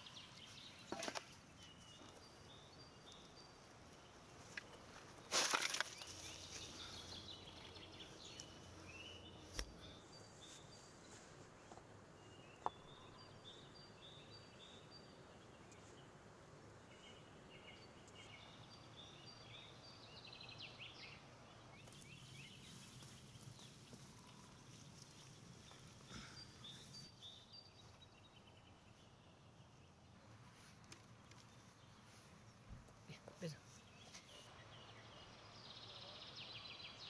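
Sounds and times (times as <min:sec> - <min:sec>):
faint bird chirps: 0:06.0 - 0:16.1, 0:21.8 - 0:29.9.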